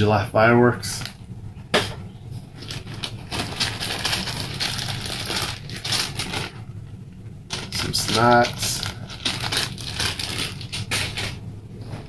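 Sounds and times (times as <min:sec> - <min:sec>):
plastic bags crinkling and rustling: 0:02.5 - 0:06.6, 0:07.5 - 0:11.4.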